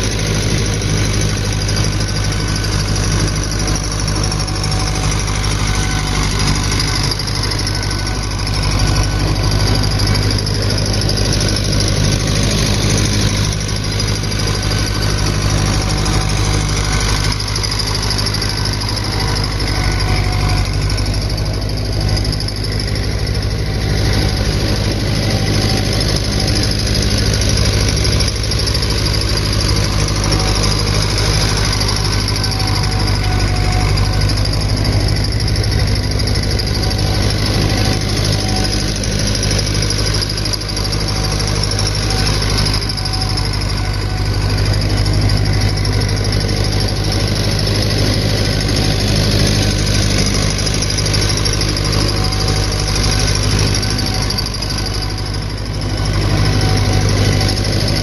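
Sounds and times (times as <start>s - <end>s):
faint squeal: 0.0s - 58.0s
tractor engine under load: 0.0s - 58.0s.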